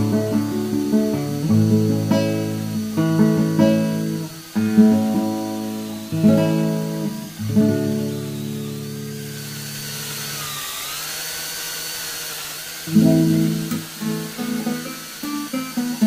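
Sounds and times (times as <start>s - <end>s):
acoustic guitar strummed chords: 0.0s - 9.1s, 12.9s - 16.0s.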